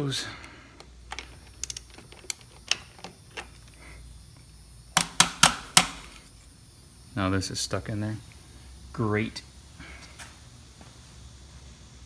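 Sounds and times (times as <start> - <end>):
socket ratchet clicking: 0.7 - 3.8.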